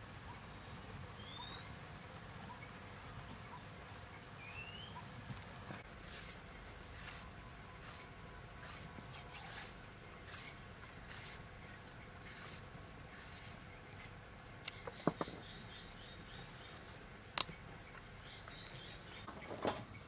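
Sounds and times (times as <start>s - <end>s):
peeler scraping carrot: 5.8s - 14.8s.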